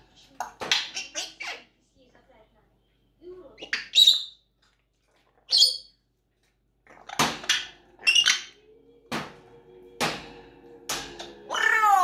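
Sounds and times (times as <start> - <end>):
parrot squawking: 0.4 - 1.7, 3.6 - 4.4, 5.5 - 6.0, 6.9 - 8.6, 11.2 - 12.0.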